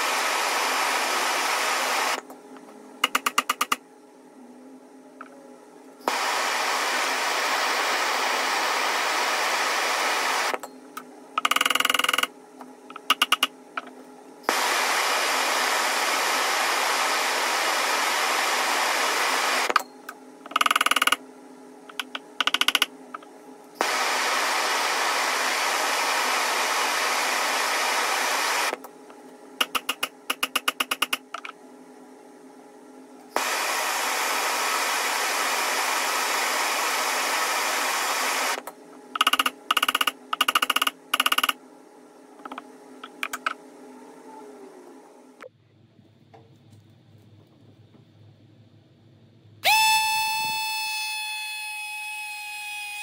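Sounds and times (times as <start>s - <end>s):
gas torch hissing: 0.0s - 2.2s, 6.1s - 10.5s, 14.5s - 19.8s, 23.8s - 28.8s, 33.4s - 38.6s.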